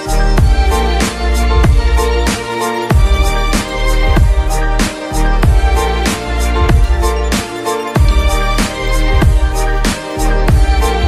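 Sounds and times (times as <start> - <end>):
electronic music with deep bass: 0.0 - 11.0
kick drum hits: 6.7 - 7.0, 8.0 - 8.5.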